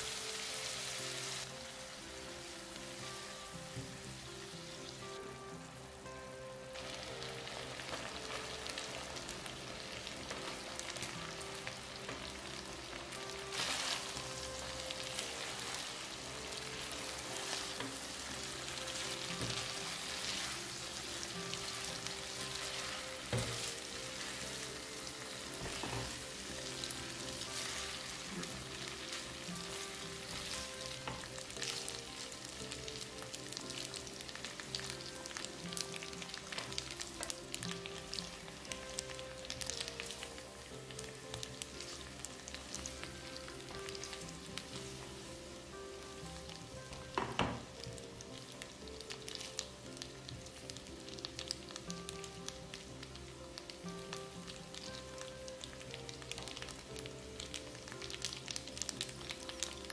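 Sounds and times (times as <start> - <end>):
food sizzling in a pan: 0.0 - 59.9.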